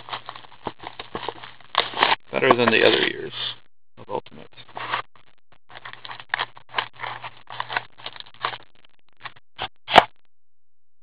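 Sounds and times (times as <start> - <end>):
plastic wrap crinkling: 0.0 - 3.2, 5.7 - 8.6.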